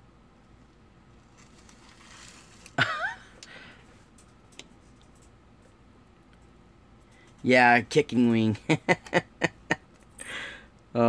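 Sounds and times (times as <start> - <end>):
soft rustle of hands: 0.5 - 2.8.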